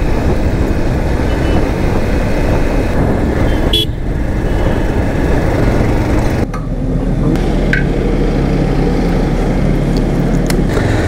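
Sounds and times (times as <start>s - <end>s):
wind rush on microphone: 0.0s - 7.4s.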